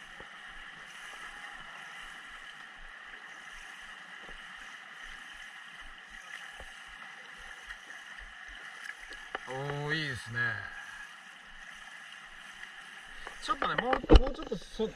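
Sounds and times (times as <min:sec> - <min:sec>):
small swimming splashes: 0:00.0 - 0:14.9.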